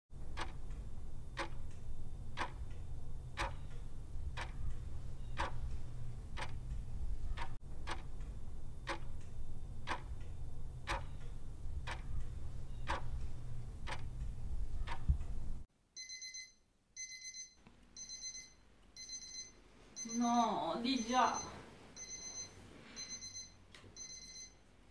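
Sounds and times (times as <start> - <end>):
alarm clock ticking: 0.2 - 15.2, 16.0 - 24.6
low hum: 0.2 - 15.7
high electronic alarm beeps: 21.0 - 24.6.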